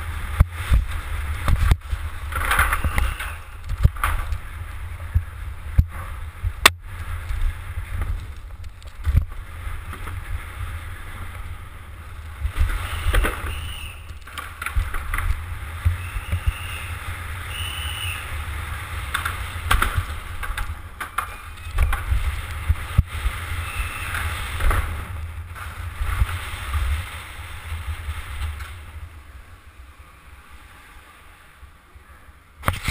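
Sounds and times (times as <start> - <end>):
wind rushing over microphone: 0.0 - 21.0
bike knocks and rattles: 19.1 - 23.3.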